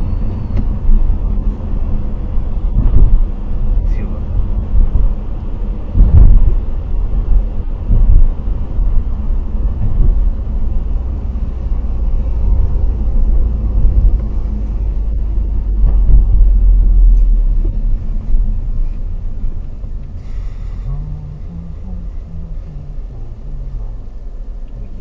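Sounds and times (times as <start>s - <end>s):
car engine and road rumble: 0.0s - 25.0s
brief hiss: 20.2s - 21.1s.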